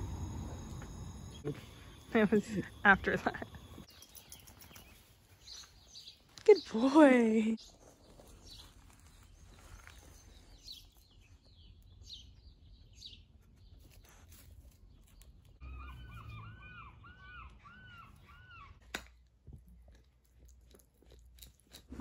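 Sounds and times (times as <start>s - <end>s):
faint high chirps: 0.0s - 5.0s.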